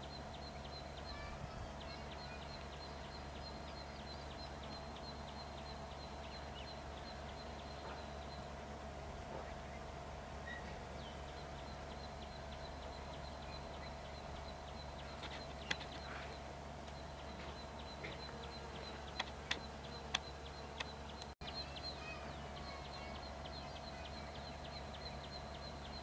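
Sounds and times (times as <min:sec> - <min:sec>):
small birds chirping: 0:00.0 - 0:26.0
steady insect hum: 0:00.0 - 0:26.0
sharp clicks: 0:15.1 - 0:16.1, 0:16.8 - 0:21.4.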